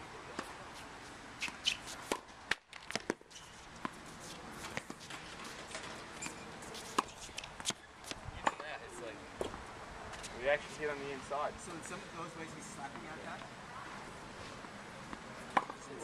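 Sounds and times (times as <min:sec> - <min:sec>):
tennis balls hit and bouncing: 0:00.3 - 0:08.8, 0:09.4 - 0:10.3, 0:12.8 - 0:16.0.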